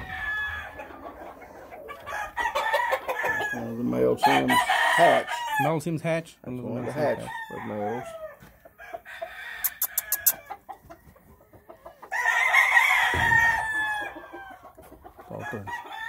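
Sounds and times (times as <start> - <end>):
rooster crowing: 0.0 - 5.7, 6.8 - 10.5, 12.1 - 14.6, 15.3 - 16.0
soft clucks: 9.6 - 12.1.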